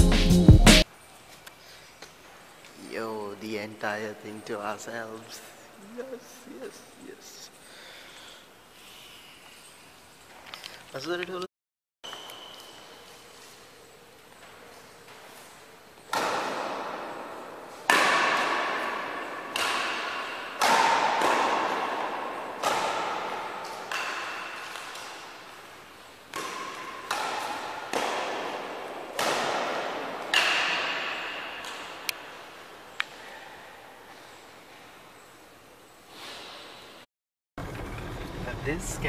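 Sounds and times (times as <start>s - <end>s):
badminton racket hitting shuttlecock: 16.0s - 32.5s.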